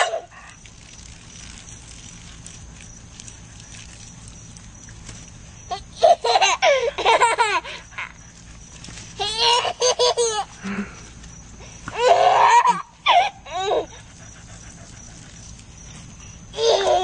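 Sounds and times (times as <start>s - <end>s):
toddler laughing: 5.7s - 8.2s, 9.2s - 10.6s, 11.9s - 14.1s, 16.6s - 17.0s.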